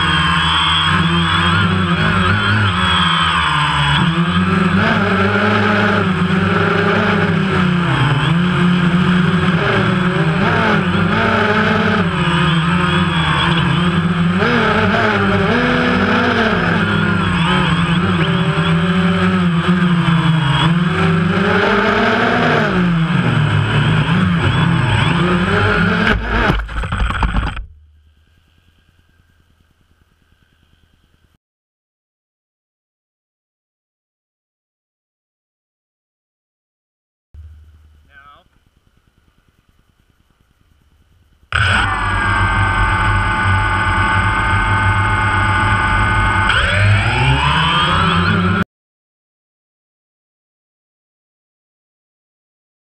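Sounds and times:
drone motors whining: 0.0 - 31.4, 40.9 - 48.6.

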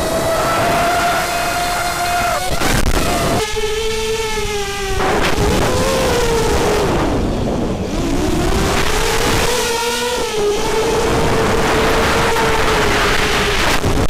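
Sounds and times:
drone motors whining: 0.0 - 14.0
wind rush: 4.4 - 14.0.

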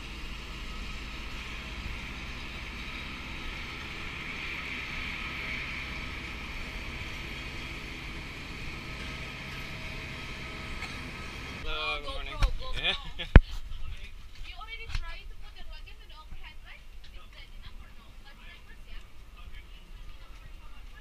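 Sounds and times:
machine hum and whine: 0.0 - 13.3
continuous rush: 0.0 - 21.0.

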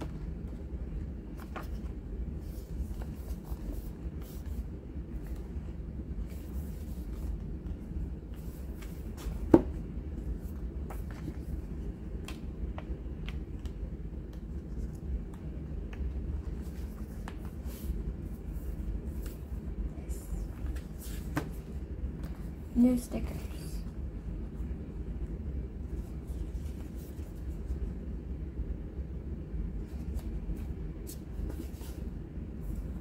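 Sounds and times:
low steady hum: 0.0 - 33.0
paper pages rustling: 1.2 - 19.6.

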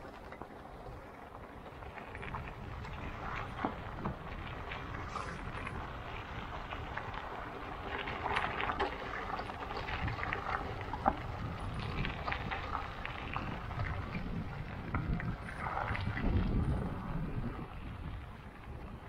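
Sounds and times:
wind rumbling on microphone: 0.0 - 19.0.

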